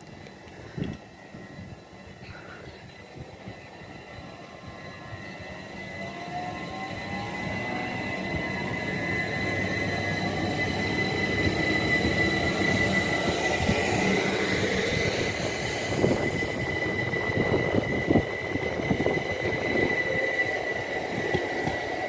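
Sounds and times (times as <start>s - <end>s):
electric train rumbling past: 0.0s - 22.0s
wheels clicking over rail joints: 21.0s - 22.0s.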